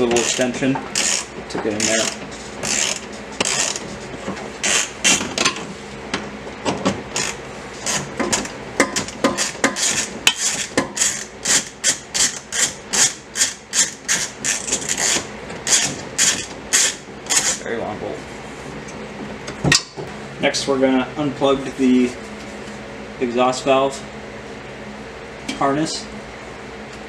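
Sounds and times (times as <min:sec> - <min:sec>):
hand ratchet clicking: 0:00.2 - 0:03.8, 0:04.6 - 0:05.2, 0:09.2 - 0:17.6.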